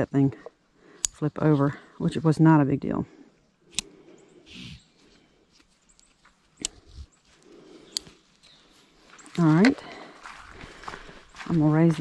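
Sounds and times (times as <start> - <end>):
buckle clicks: 1.0 - 1.2, 3.7 - 4.0, 6.0 - 6.9.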